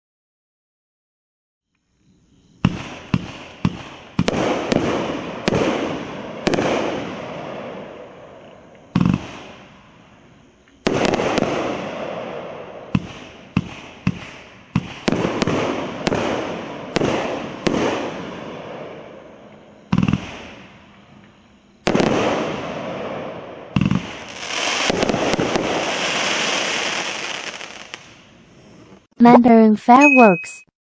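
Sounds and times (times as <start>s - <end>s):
fireworks crackle: 2.6s - 10.0s, 10.6s - 29.1s
fireworks bangs: 2.6s - 29.1s.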